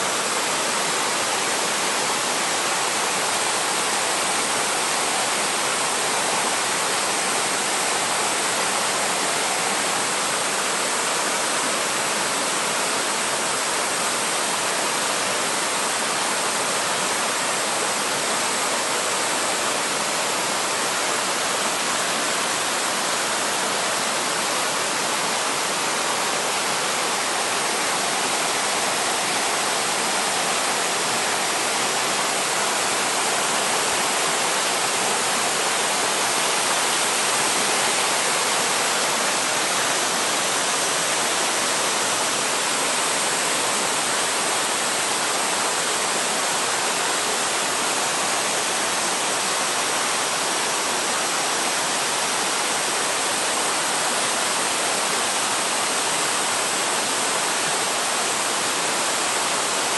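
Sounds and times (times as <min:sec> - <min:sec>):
stream rushing over rocks: 0:00.0 - 0:59.9.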